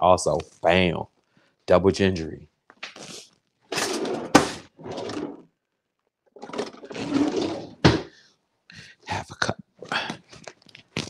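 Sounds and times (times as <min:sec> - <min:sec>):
rustling and scraping: 0:03.0 - 0:05.5, 0:06.4 - 0:08.1.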